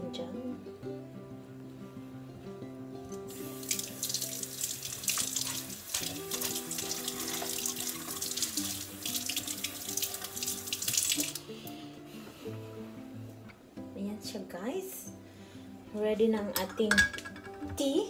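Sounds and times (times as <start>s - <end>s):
background music: 0.0s - 18.0s
tap water running into sink: 3.3s - 11.4s.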